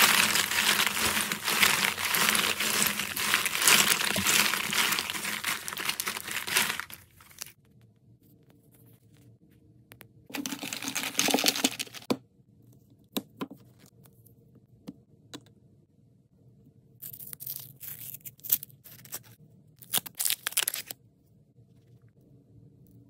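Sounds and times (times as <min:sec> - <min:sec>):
wrappers crinkling and tearing: 0:00.0 - 0:07.6, 0:10.4 - 0:12.1, 0:17.4 - 0:20.9.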